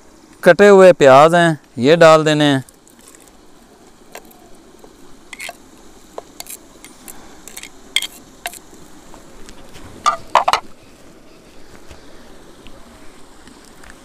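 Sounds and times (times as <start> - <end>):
knife scraping a clay bowl: 5.3 - 5.6, 6.4 - 8.7.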